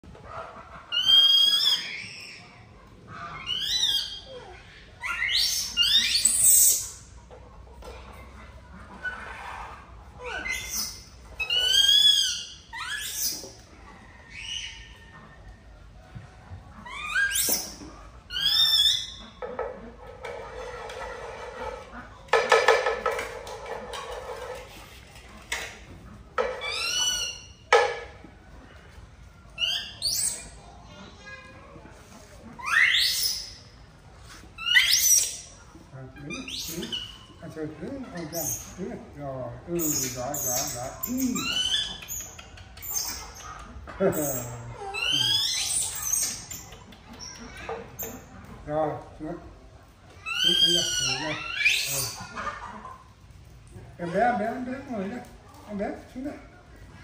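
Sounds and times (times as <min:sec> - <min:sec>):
baby monkey screaming: 0:00.9 - 0:02.5, 0:03.3 - 0:07.0, 0:09.0 - 0:13.4, 0:14.3 - 0:15.1, 0:16.8 - 0:19.3, 0:26.6 - 0:27.6, 0:29.6 - 0:30.6, 0:32.6 - 0:33.6, 0:34.6 - 0:35.5, 0:36.2 - 0:37.4, 0:38.2 - 0:38.8, 0:39.8 - 0:48.3, 0:50.2 - 0:52.4
high falling squeaks: 0:44.2 - 0:48.3, 0:50.2 - 0:52.3.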